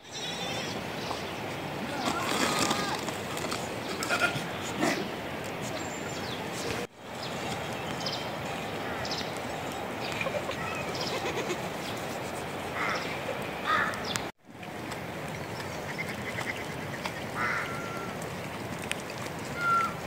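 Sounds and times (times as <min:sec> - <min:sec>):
sheep and goats bleating: 0:03.9 - 0:04.6.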